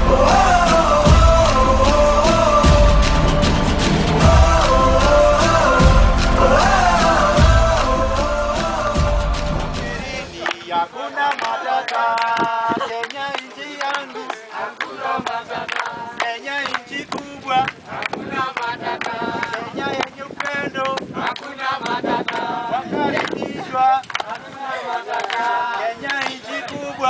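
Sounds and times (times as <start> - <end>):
produced music track: 0.0 - 11.4
men singing in unison: 0.0 - 27.0
hands clapping: 9.8 - 22.5, 23.1 - 23.4, 24.0 - 24.4, 25.1 - 26.8.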